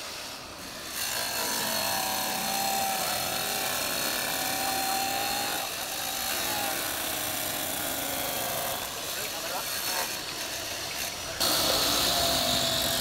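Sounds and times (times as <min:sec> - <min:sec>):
wet tile saw cutting tile: 0:00.0 - 0:13.0.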